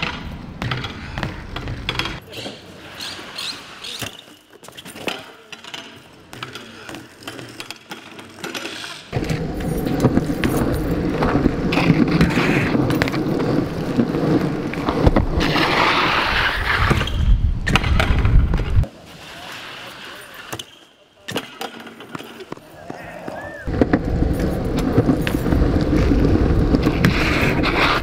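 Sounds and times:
bike tyres rumbling on pavement: 0.0s - 4.8s, 9.2s - 20.0s, 22.8s - 28.0s.

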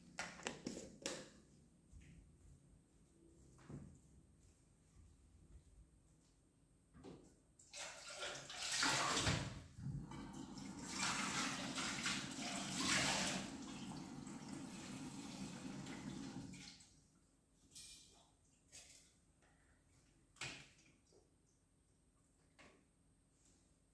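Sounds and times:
dishes being rinsed: 7.8s - 16.9s.

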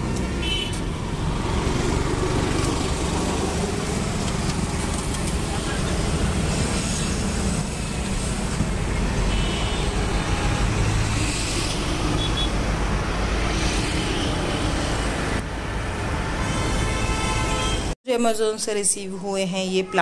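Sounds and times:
traffic rumble: 0.0s - 18.0s.

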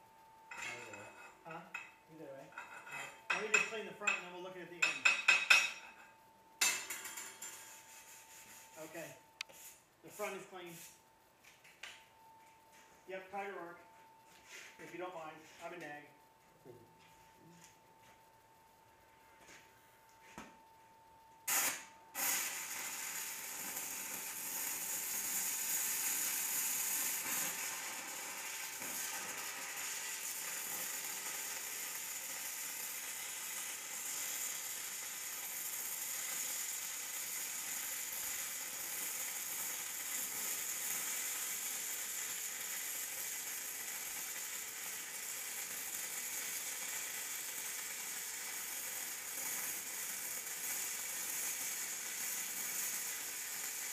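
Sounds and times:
welding arc crackling: 21.5s - 53.9s
welding arc pops: 21.5s - 53.9s.

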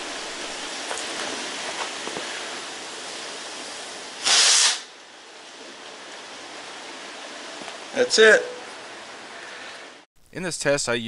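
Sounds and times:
loud hissing whoosh: 0.0s - 5.0s
fuse burning with a hiss: 0.0s - 7.8s.

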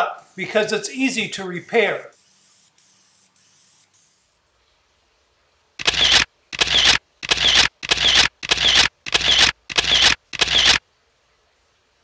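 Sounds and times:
camera shutter sound effect: 5.8s - 10.8s.

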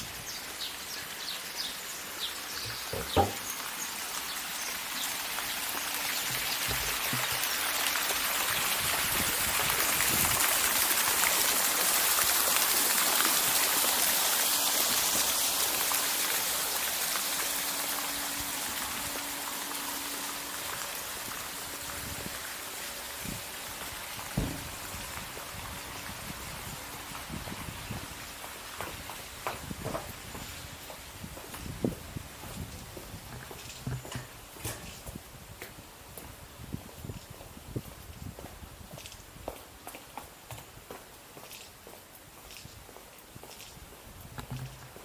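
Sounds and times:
fountain water splashing: 0.0s - 35.2s
sharp knock: 2.9s - 3.4s, 24.4s - 24.7s.

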